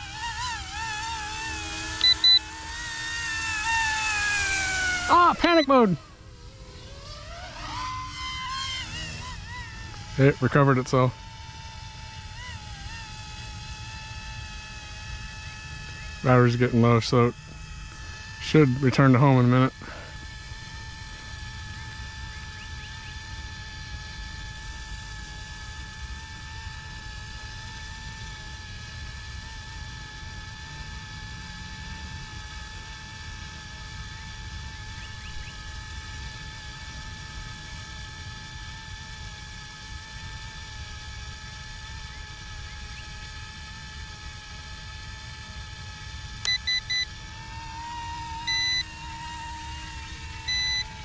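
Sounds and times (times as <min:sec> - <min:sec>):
rc helicopter whine: 0:00.0 - 0:51.0
short beeps: 0:02.0 - 0:02.4, 0:46.5 - 0:47.1, 0:48.5 - 0:48.9, 0:50.5 - 0:50.9.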